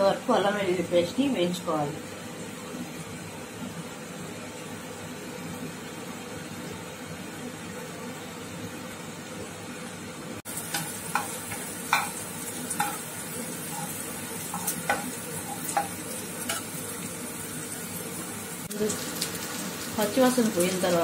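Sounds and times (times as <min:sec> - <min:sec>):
paste sizzling in butter: 0:10.5 - 0:21.0
spatula scraping and tapping pan: 0:10.6 - 0:13.1, 0:13.7 - 0:16.8.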